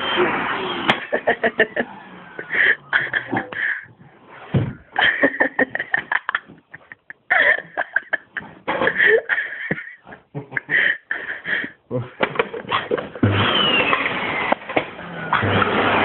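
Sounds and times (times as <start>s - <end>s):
person laughing: 1.0s - 4.0s, 4.9s - 13.1s.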